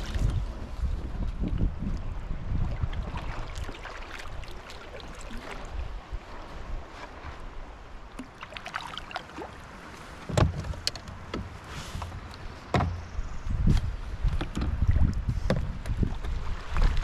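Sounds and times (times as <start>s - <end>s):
paddle splashes and drips: 0.0s - 13.1s, 14.2s - 17.0s
water washing: 2.8s - 5.8s, 8.2s - 13.1s.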